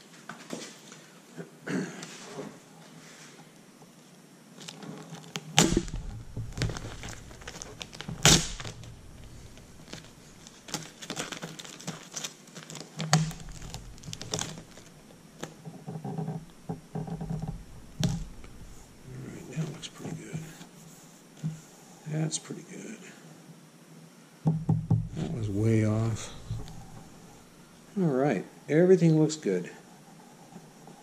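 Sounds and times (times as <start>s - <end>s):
plastic sheet crinkling: 4.6s - 21.4s, 25.2s - 27.9s
tape being peeled and pressed: 4.6s - 21.5s, 25.0s - 27.8s
loud snaps: 5.6s - 10.9s.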